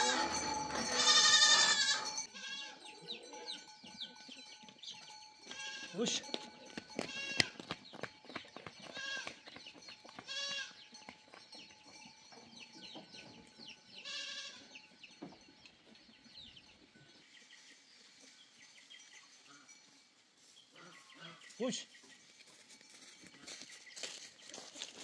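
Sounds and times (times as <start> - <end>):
goats bleating: 0.0 - 2.8, 5.5 - 5.9, 14.0 - 14.6.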